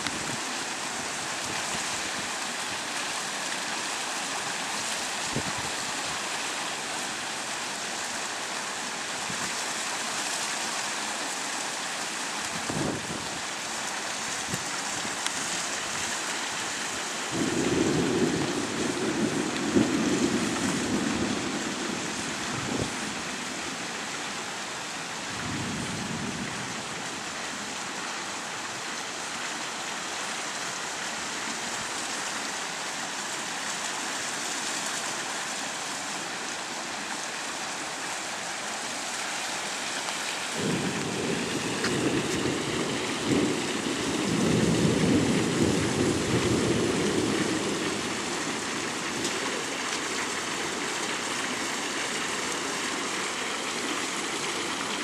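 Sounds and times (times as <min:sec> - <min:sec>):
rushing hiss of rain: 0:00.0 - 0:55.0
thunder rumbling: 0:17.3 - 0:23.4, 0:40.5 - 0:49.1.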